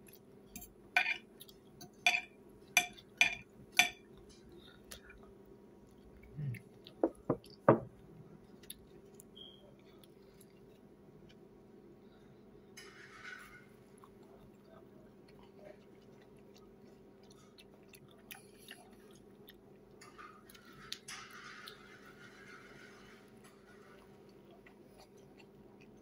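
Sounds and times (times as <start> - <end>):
faint steady hum: 0.0 - 26.0
cutlery clinking on a plate: 0.6 - 1.2, 1.8 - 4.5
cutlery squeaking on a plate: 20.0 - 23.9.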